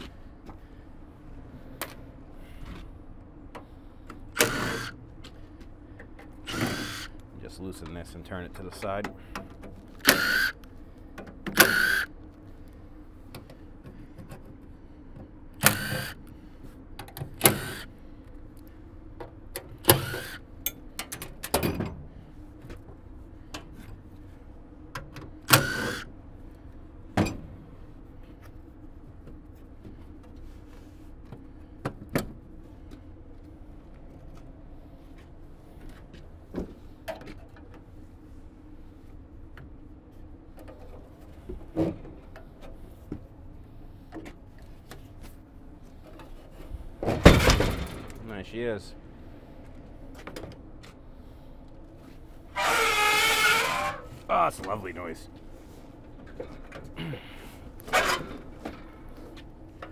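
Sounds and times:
impact driver bursts: 4.3 - 5.0, 6.4 - 7.2, 10.0 - 10.6, 11.5 - 12.1, 15.6 - 16.2, 17.3 - 17.9, 19.8 - 20.5, 25.4 - 26.1.

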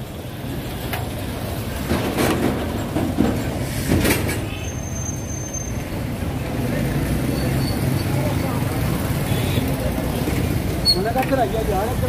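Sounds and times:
low rumble of street traffic: 0.0 - 12.0
sharp knocks and clatters: 1.7 - 4.5.

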